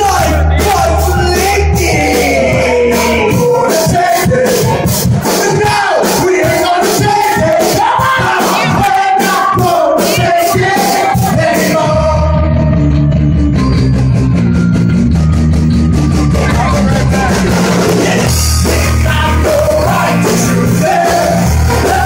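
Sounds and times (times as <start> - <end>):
fast cymbal beat: 0.0 - 11.8, 16.2 - 22.0
person singing: 0.0 - 12.8, 16.3 - 22.0
heavy low guitar and bass chords: 0.0 - 22.0
live rock band playing: 0.0 - 22.0.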